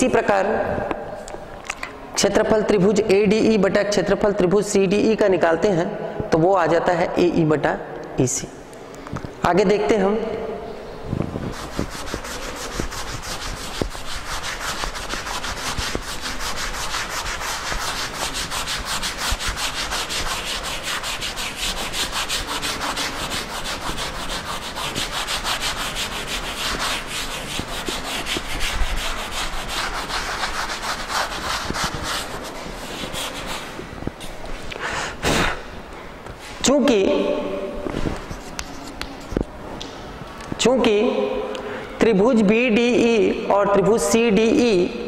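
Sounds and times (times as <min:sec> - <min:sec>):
eraser rubbing blackboard: 0:11.4 - 0:34.4.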